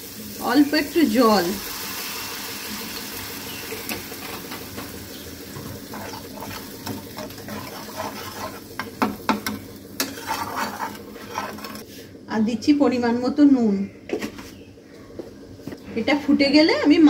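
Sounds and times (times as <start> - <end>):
sauce sizzling in a frying pan: 0.0 - 12.1
metal spatula scraping pan: 5.8 - 12.0
spatula knocking against pan: 8.8 - 10.2.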